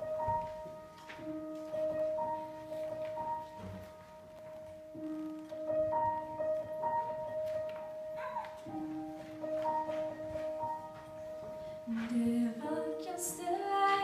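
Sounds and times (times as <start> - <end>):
slow piano notes: 0.0 - 14.0.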